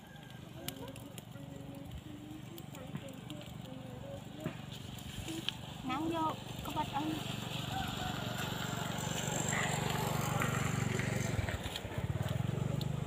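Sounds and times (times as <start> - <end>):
small engine running: 0.0 - 13.0.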